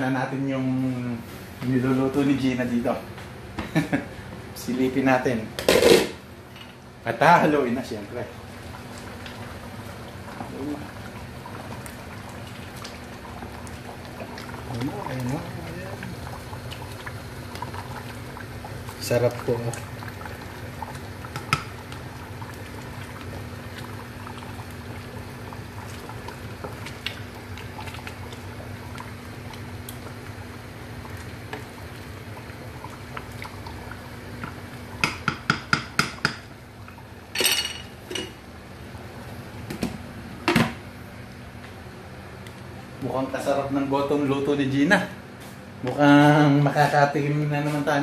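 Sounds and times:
porridge boiling: 0:00.0 - 0:48.0
knocks against metal pot: 0:35.0 - 0:36.4.

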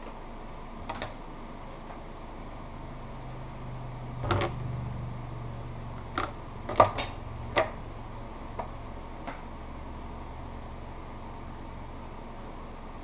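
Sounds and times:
steady low hum: 0:00.0 - 0:13.0
sharp clicks and knocks: 0:04.2 - 0:04.6, 0:06.1 - 0:07.8.

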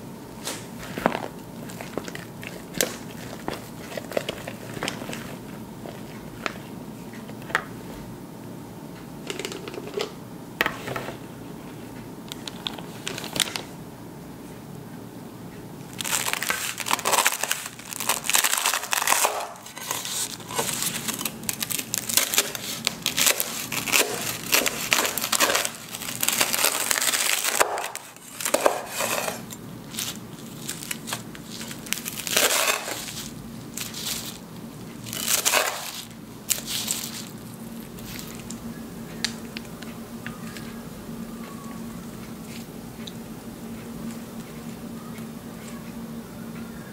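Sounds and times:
knife cutting crunchy pastry: 0:16.4 - 0:34.4, 0:35.1 - 0:38.4.

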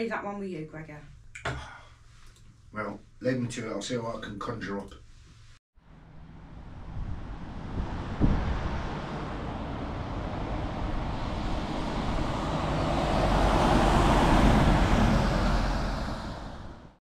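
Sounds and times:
tyre noise on wet road: 0:06.4 - 0:16.7.

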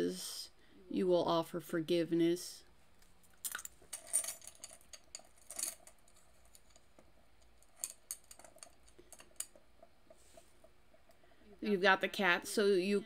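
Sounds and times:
metal charms clinking: 0:03.3 - 0:09.6.

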